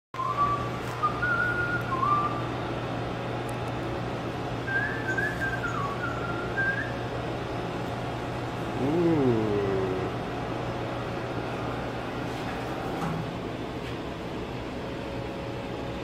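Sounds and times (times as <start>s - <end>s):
man whistling a tune: 0.2s - 2.5s, 4.6s - 7.0s
low machine hum: 0.2s - 16.0s.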